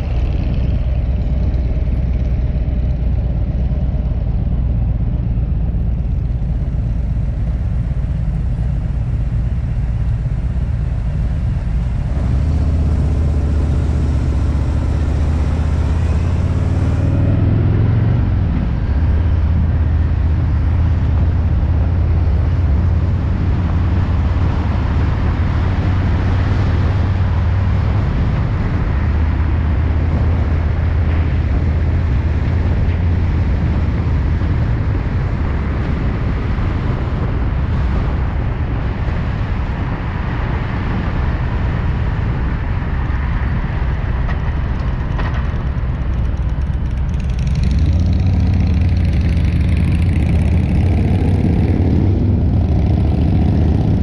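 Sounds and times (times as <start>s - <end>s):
wind and road noise: 0.0s - 54.0s
motorcycle engine running: 43.0s - 54.0s.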